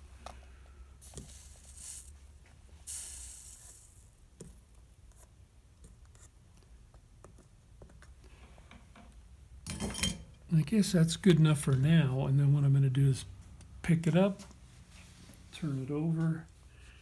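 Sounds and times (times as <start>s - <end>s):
solder flux sizzling: 0.9s - 6.4s.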